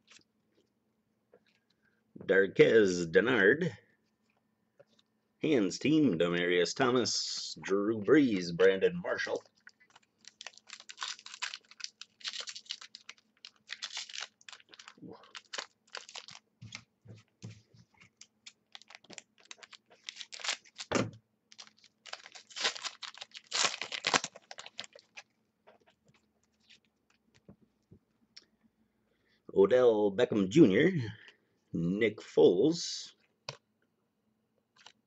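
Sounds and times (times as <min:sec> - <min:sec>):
card pack wrapper crinkling: 0:09.1 - 0:16.9, 0:18.1 - 0:27.2, 0:34.8 - 0:35.0
cards rustling: 0:09.1 - 0:16.9, 0:17.6 - 0:25.3.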